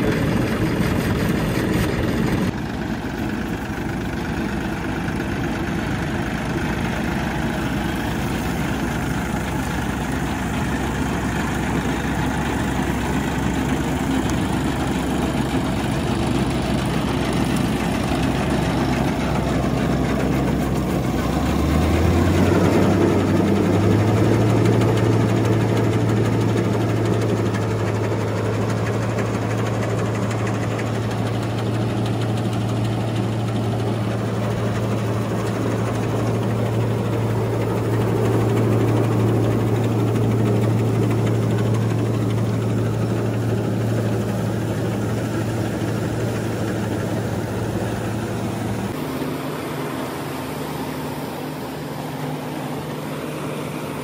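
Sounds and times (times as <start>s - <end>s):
tractor diesel engine revving: 0.0s - 54.0s.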